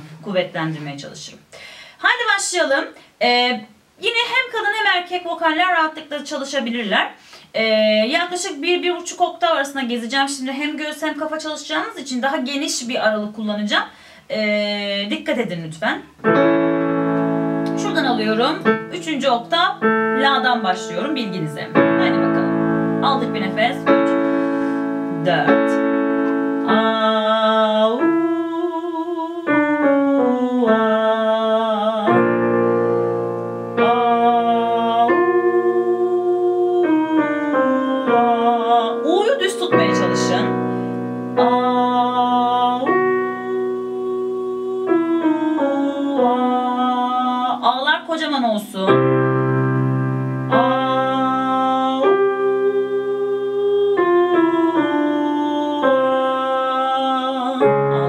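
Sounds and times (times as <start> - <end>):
digital piano playing: 16.2 - 28.6, 32.0 - 58.0
electric keyboard chords: 16.2 - 28.6, 32.0 - 47.6, 48.9 - 56.7
woman singing vocal warm-up: 17.5 - 33.1, 33.7 - 49.1, 50.5 - 58.0.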